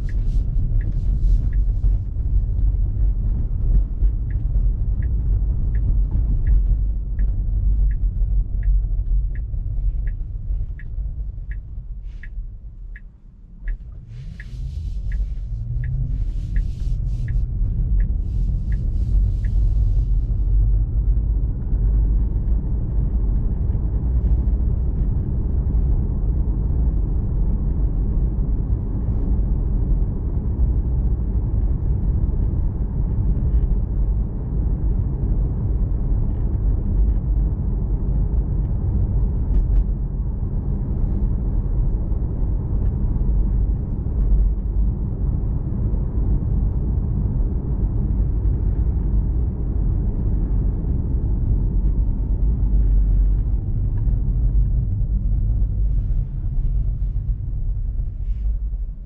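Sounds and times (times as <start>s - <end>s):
tyre and road noise in car: 0.0s - 59.0s.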